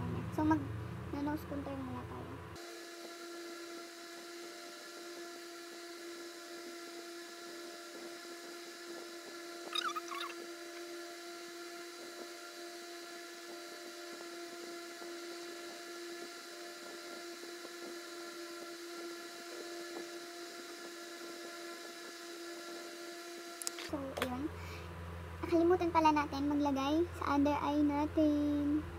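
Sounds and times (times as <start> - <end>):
small electric motor hum: 1.2 - 25.8
high falling chirp: 9.7 - 10.4.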